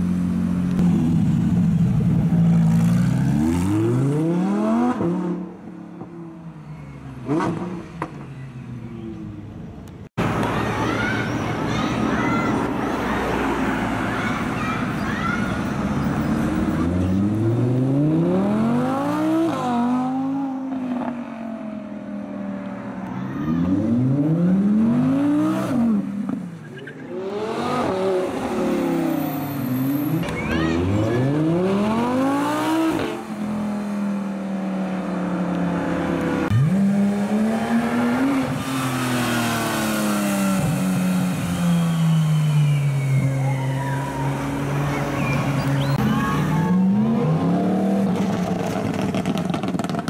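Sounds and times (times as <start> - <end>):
sports cars accelerating hard: 23.6 - 50.0.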